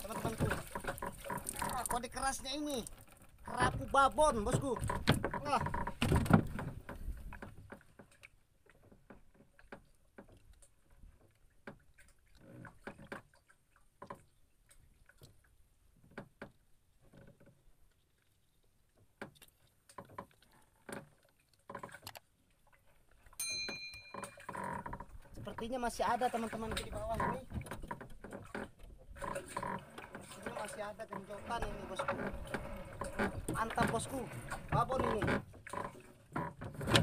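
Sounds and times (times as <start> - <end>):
knocks inside wooden boat: 3.5 - 7.8, 32.1 - 37.0
high ding: 23.4 - 24.4.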